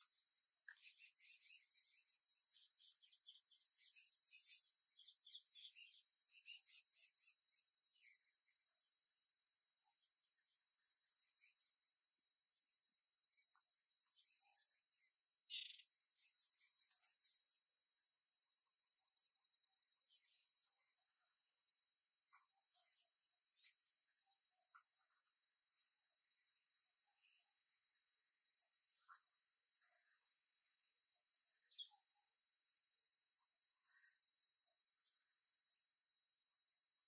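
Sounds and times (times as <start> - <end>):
birds chirping and whistling: 0.0 - 8.2, 31.6 - 35.8.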